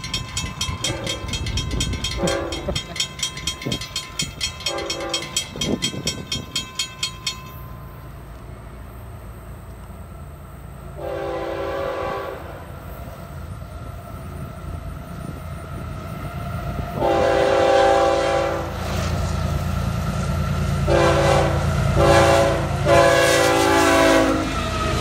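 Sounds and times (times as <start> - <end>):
train rumble: 0.0 - 25.0
locomotive air horn blasts: 2.2 - 2.8, 4.7 - 5.4, 11.0 - 12.7, 16.9 - 19.2, 20.8 - 25.0.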